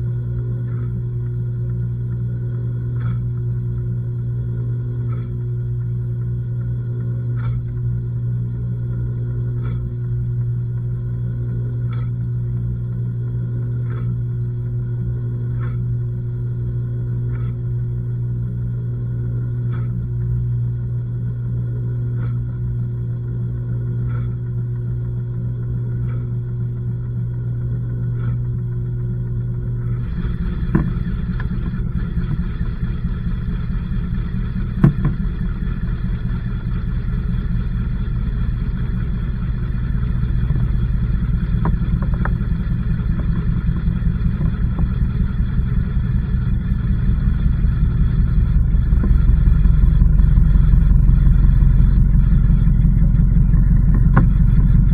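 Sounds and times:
washing machine running: 0:00.0 - 0:54.9
drum knocking: 0:30.1 - 0:32.4, 0:34.6 - 0:35.4.

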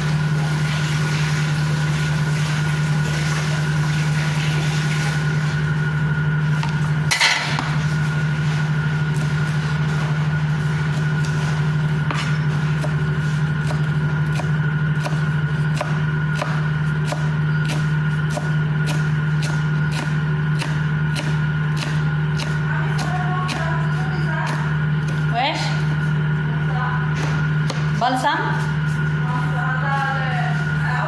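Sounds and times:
fan motor humming: 0:00.0 - 0:31.0
knife chopping on cutting board: 0:13.6 - 0:25.3, 0:27.2 - 0:28.0.

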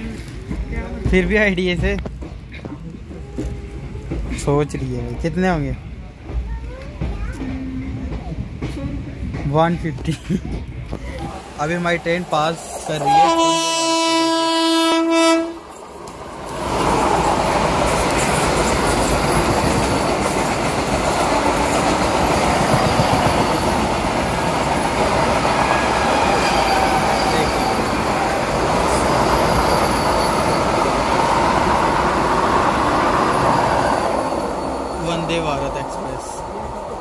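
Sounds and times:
train passing at speed: 0:00.0 - 0:37.0
train horn blast: 0:13.0 - 0:15.6.

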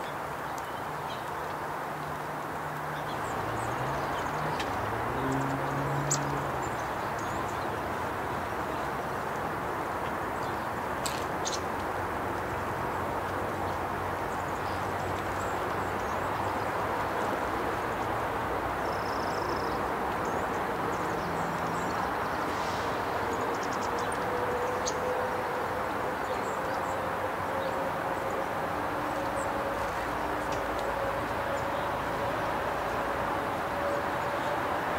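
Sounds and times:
small birds chirping: 0:00.0 - 0:09.2, 0:10.4 - 0:11.8
steady outdoor rumble: 0:00.0 - 0:34.9.

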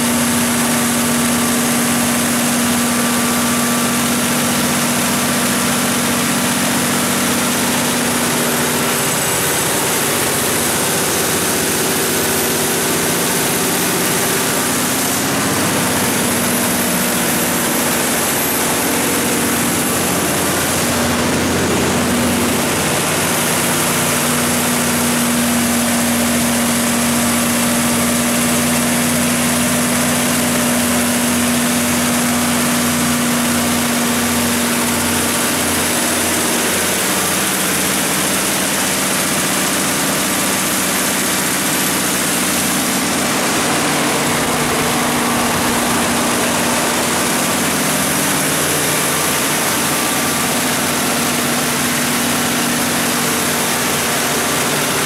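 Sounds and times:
diesel generator engine droning: 0:00.0 - 0:55.0
steady hum: 0:02.2 - 0:29.8, 0:41.3 - 0:55.0.

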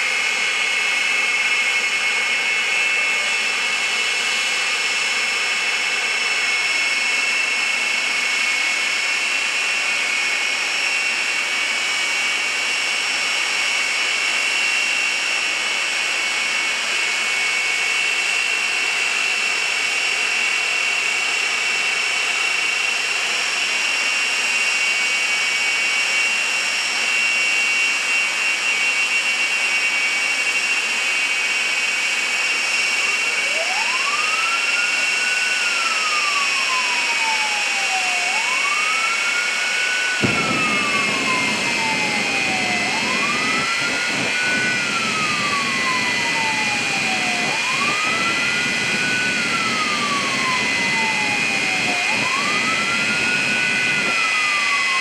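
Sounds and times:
jet engines roaring with high whine: 0:00.0 - 0:55.0
siren winding up: 0:32.7 - 0:55.0.

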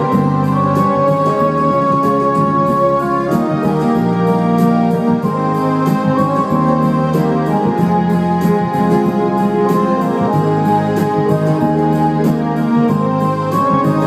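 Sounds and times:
keyboard organ-like chords: 0:00.0 - 0:14.0
programmed drum beat: 0:00.0 - 0:14.0.

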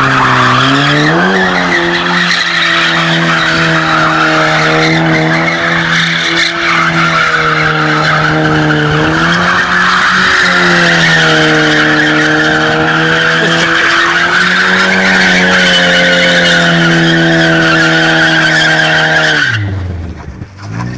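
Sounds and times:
tyres screeching: 0:00.0 - 0:19.7
car engine at high revs: 0:00.0 - 0:20.9.

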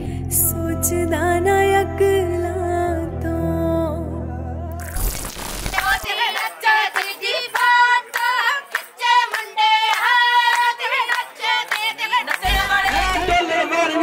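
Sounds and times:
deep bass background music: 0:00.0 - 0:05.1, 0:12.5 - 0:13.4
hands clapping: 0:05.8 - 0:13.2
women and girls singing: 0:05.8 - 0:14.0.

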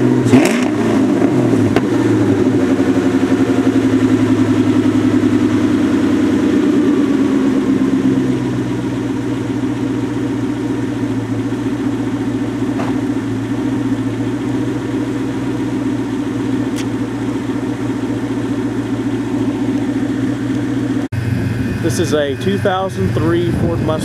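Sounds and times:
car engine idling: 0:00.0 - 0:24.0.

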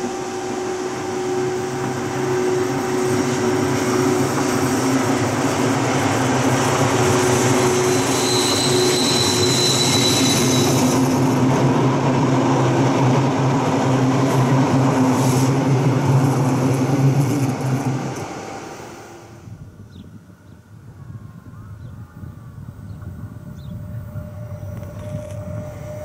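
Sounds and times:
high wheel squeal: 0:00.0 - 0:11.4
wheels rumbling on rail: 0:00.0 - 0:20.2, 0:21.4 - 0:26.0
electric locomotive hum: 0:00.0 - 0:26.0.

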